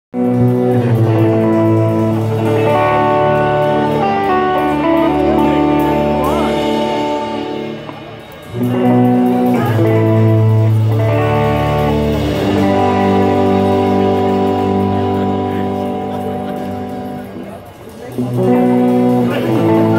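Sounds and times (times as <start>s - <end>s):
live rock band playing: 0.1s - 19.9s.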